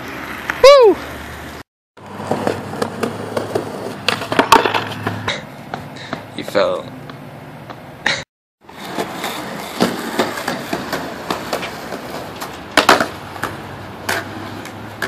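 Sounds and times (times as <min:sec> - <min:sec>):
skateboard wheels rolling on concrete: 0:00.0 - 0:15.0
skateboard clacking on ground: 0:02.0 - 0:06.8, 0:08.7 - 0:15.0.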